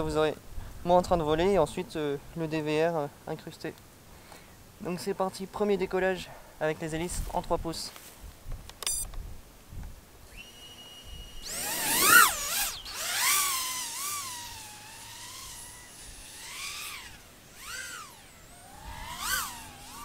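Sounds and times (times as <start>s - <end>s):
drone propeller whine: 10.3s - 20.0s.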